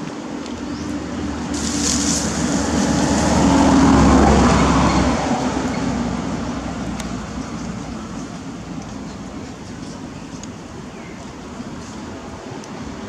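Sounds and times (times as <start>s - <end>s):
vehicle passing by: 0.6s - 9.5s.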